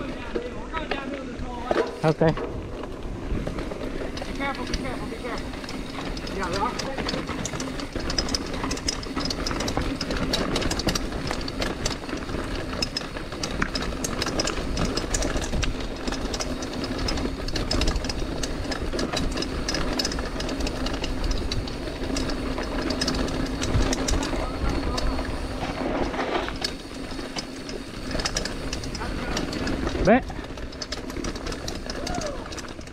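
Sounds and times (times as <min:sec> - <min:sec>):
bike clicking and rattling: 0:00.0 - 0:32.9
bike tyres on dirt trail: 0:00.0 - 0:32.9
wind rumble on microphone: 0:02.4 - 0:04.8.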